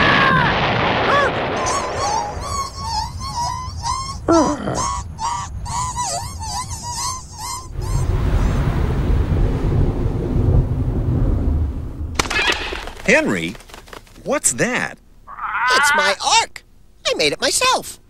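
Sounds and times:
squeaky honking cartoon calls: 1.6 - 8.1, 15.3 - 16.2
low rumbling rush: 8.1 - 12.2.

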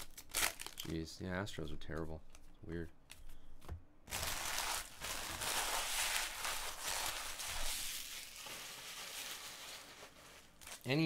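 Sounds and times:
foil wrapper crinkling: 4.1 - 11.0.

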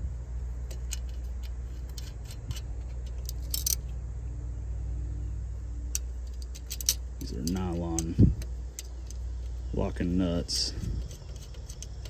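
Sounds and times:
steady low hum: 0.0 - 12.0
metallic clicks of nuts and washers: 0.6 - 4.0, 5.9 - 12.0.

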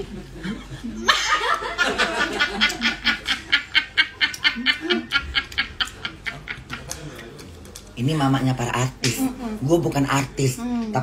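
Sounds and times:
woman laughing hard: 0.4 - 7.0.

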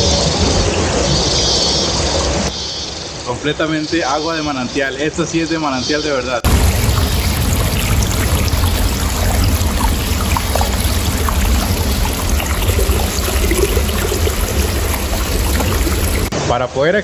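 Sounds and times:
spring water trickling and splashing: 6.5 - 16.3.

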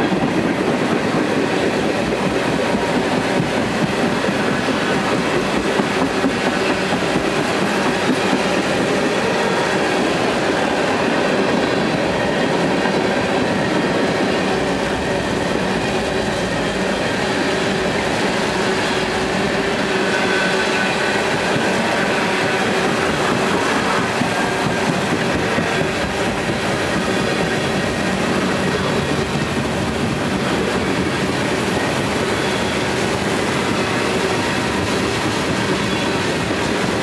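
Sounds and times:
freight train rumbling past: 0.0 - 37.0
steel wheels clattering over rail joints: 0.0 - 37.0
high wheel squeal: 31.8 - 34.8, 35.5 - 36.5.

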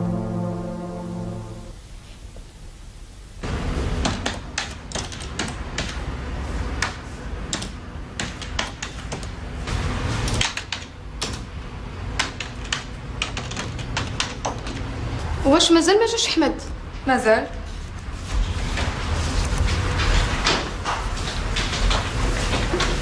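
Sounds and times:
keyboard typing: 12.2 - 14.9.

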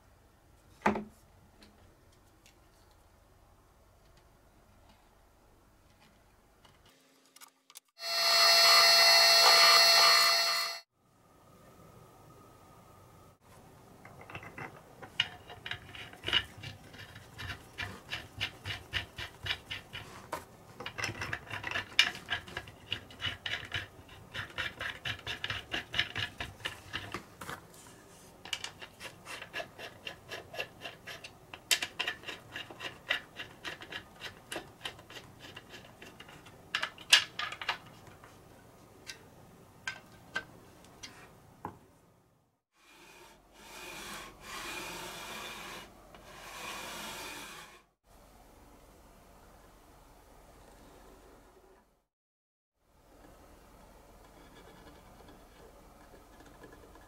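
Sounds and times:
hand screwdriver clicking and scraping: 14.1 - 20.1, 20.8 - 27.2, 28.4 - 38.0.

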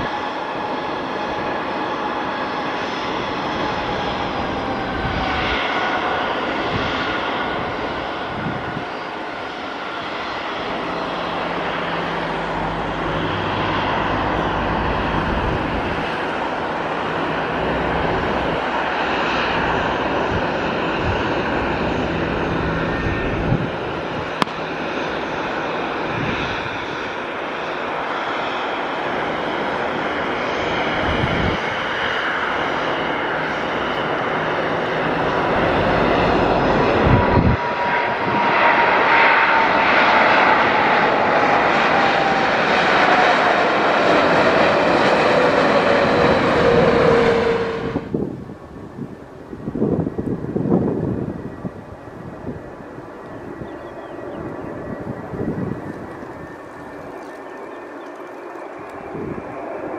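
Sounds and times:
jet engine rush: 0.0 - 59.9
whine sliding down in pitch: 10.8 - 18.6, 45.4 - 48.2.

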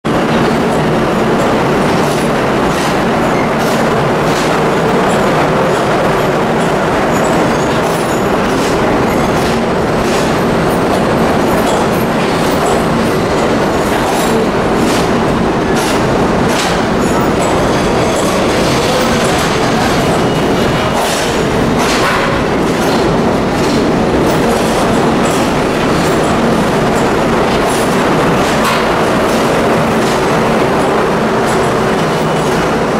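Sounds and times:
subway train rumbling past: 0.1 - 32.9
wheels clicking on rails: 0.1 - 32.9.

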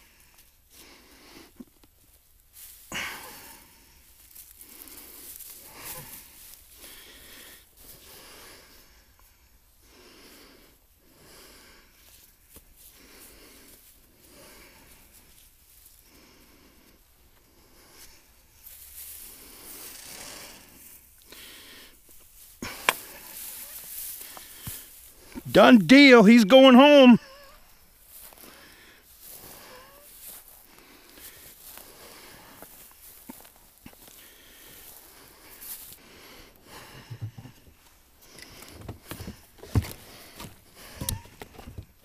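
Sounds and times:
dry grass rustling: 2.0 - 8.1, 12.0 - 25.4, 27.6 - 36.2
rope scraping: 19.2 - 21.0
nylon rope being handled: 22.0 - 25.5.

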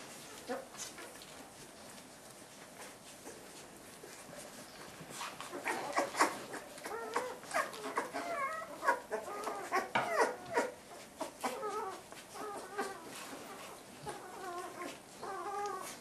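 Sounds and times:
puppies squeaking and whimpering: 5.1 - 16.0.

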